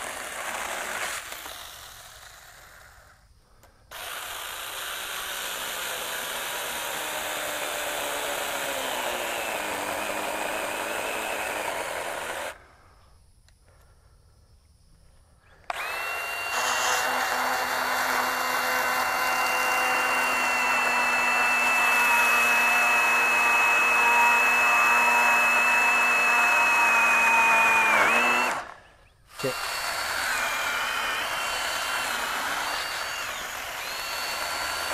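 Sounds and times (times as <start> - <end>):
chainsaw high whine: 0.0 - 3.2, 3.9 - 12.6, 15.6 - 34.9
cordless chainsaw cutting log: 0.0 - 3.2, 3.9 - 12.6, 15.7 - 34.9.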